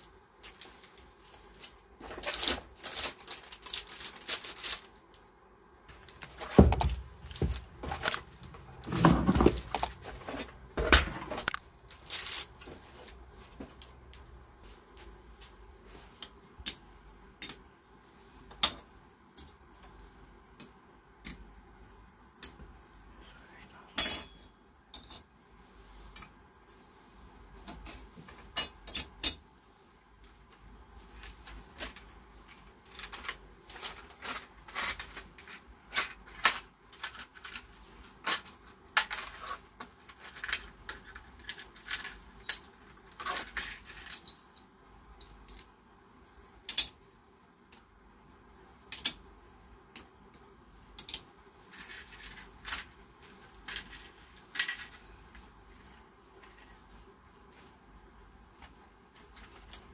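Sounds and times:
plastic packaging handling: 0:00.4 - 0:05.2, 0:05.9 - 0:13.7.

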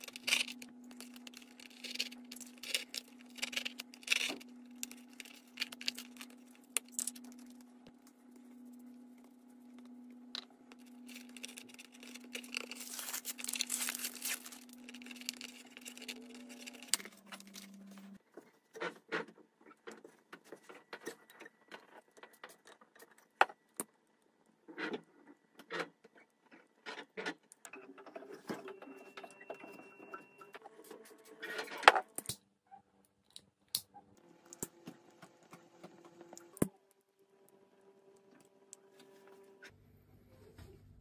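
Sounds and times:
spreader scraping wet compound: 0:10.6 - 0:18.2.

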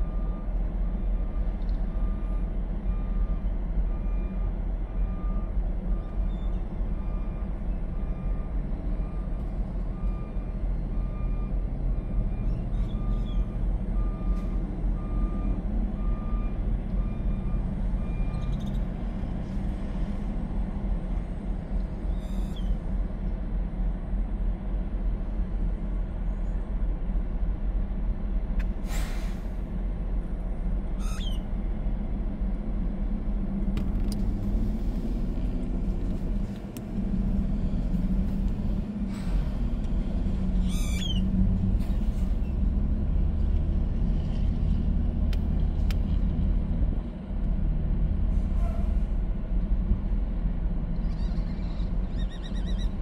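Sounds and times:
truck reversing alarm beeping: 0:00.0 - 0:18.8
diesel trucks idling: 0:00.0 - 0:51.1
air brakes hissing: 0:28.8 - 0:29.6, 0:39.0 - 0:39.8, 0:48.3 - 0:49.1.

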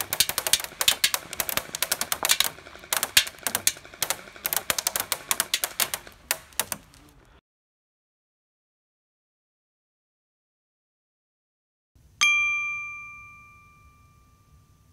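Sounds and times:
airsoft gun firing full-auto: 0:00.0 - 0:07.1.

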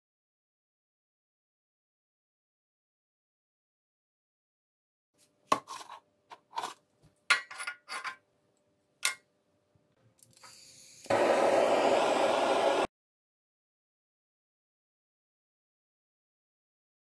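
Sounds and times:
torch burning with rushing hiss: 0:10.7 - 0:12.9.

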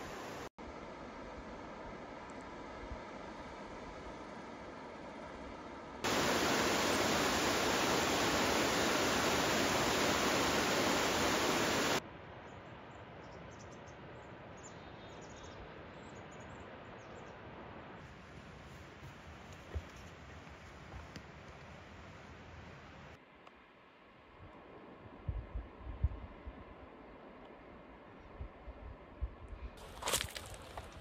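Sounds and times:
loud steady hiss: 0:00.0 - 0:00.5, 0:06.0 - 0:12.0.

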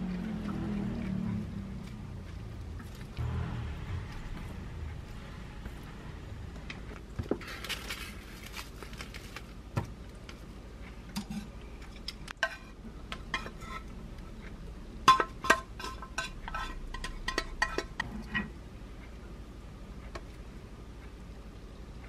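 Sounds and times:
utensil clinking and scraping pan: 0:12.4 - 0:13.9, 0:15.1 - 0:18.5.

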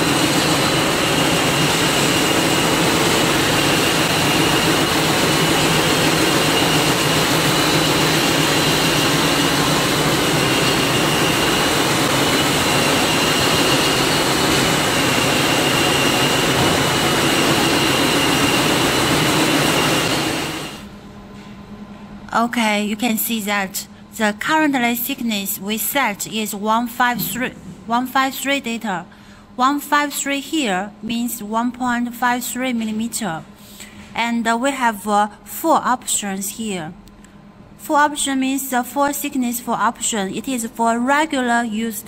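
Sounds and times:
high machine whine: 0:00.0 - 0:29.6.

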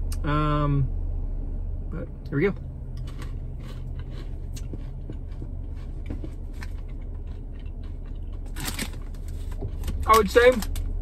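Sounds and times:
car interior hum: 0:00.0 - 0:11.0
person chewing crunchy pretzels: 0:02.9 - 0:10.3.

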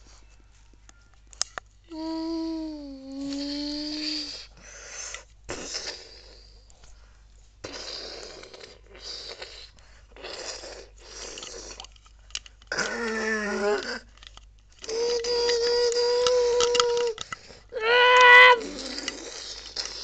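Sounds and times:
dog whining: 0:17.8 - 0:19.2.

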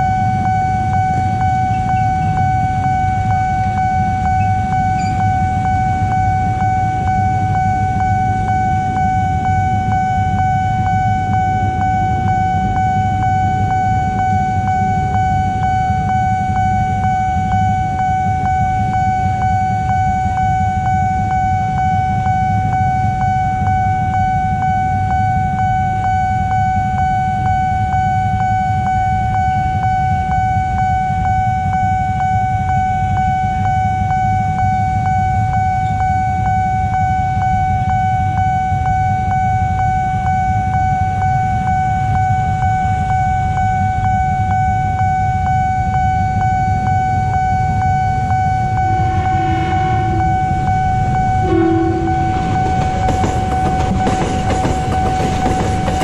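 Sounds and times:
level crossing alarm ringing: 0:00.0 - 0:56.0
motorcycle engines idling: 0:01.2 - 0:03.2.

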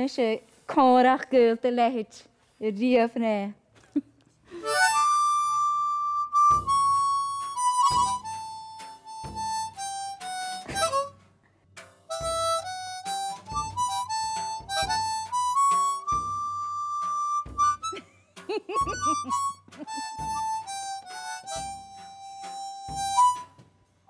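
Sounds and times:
harmonica playing slow tune: 0:04.5 - 0:24.0
drum kit: 0:04.7 - 0:24.0.

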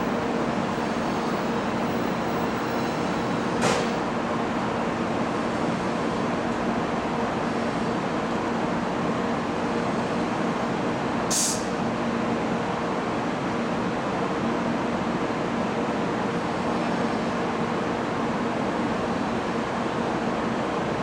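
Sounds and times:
train pulling away: 0:00.0 - 0:06.5
station platform rumble: 0:00.0 - 0:21.0
short sharp hiss: 0:11.3 - 0:11.8.

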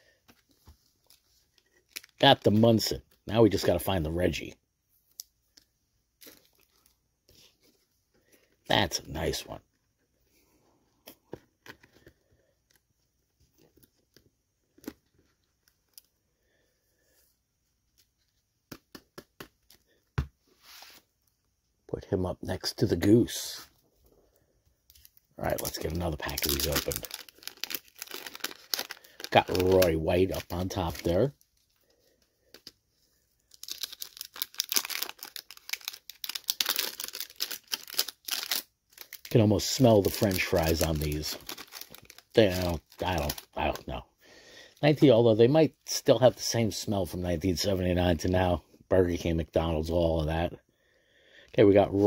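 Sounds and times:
plastic wrapper crinkling and tearing: 0:01.0 - 0:02.9, 0:24.9 - 0:32.8, 0:33.4 - 0:44.0
cards rustling: 0:24.9 - 0:43.9.

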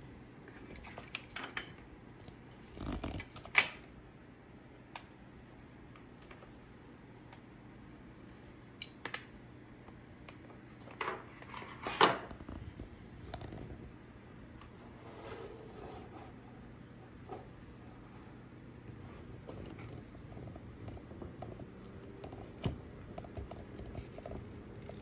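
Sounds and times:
clicks and rustles of handled cables: 0:00.4 - 0:04.0, 0:08.7 - 0:13.9, 0:18.9 - 0:25.0.

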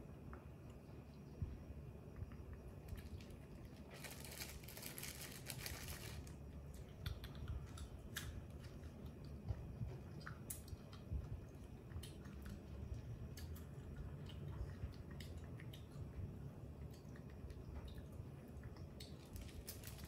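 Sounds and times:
small clicks and crunches: 0:02.3 - 0:09.0, 0:18.7 - 0:20.0
plastic bag crinkling: 0:02.9 - 0:06.4, 0:19.2 - 0:20.0.

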